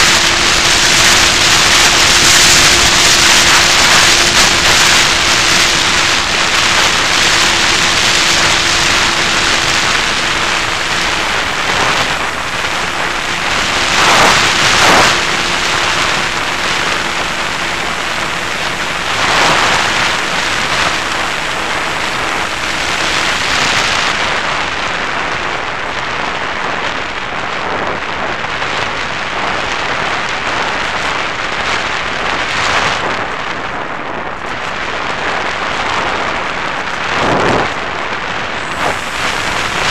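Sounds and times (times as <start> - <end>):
airflow rushing hiss: 0.0 - 25.2, 38.6 - 39.9.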